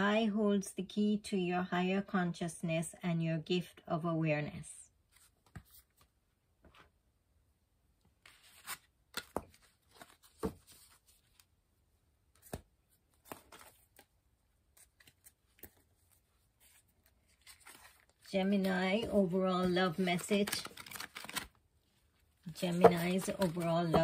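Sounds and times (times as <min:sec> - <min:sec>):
cards rustling and clicking: 0:08.2 - 0:11.5, 0:12.4 - 0:21.6, 0:22.5 - 0:24.0.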